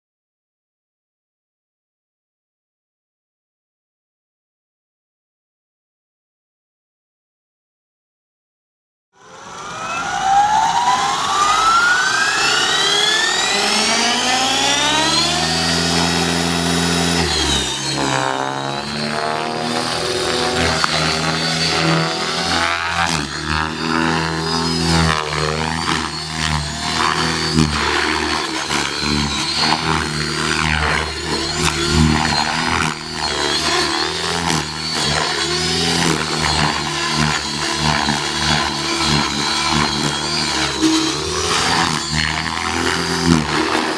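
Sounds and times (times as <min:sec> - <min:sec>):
rc helicopter motor and rotors whining: 0:09.2 - 0:43.9.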